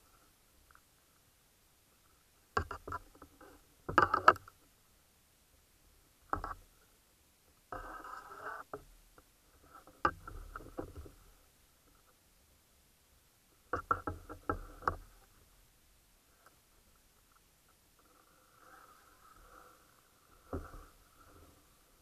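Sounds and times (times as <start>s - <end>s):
underwater knocks and scrapes: 2.6s - 4.5s, 9.6s - 11.3s, 20.4s - 21.6s.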